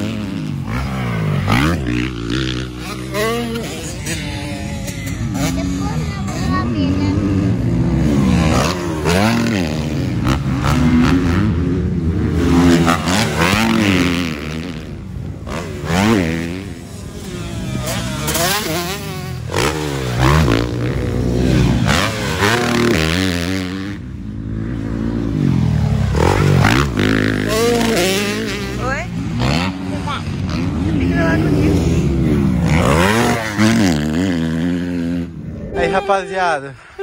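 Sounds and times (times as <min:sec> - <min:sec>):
motocross bike engines revving: 0:00.0 - 0:37.0.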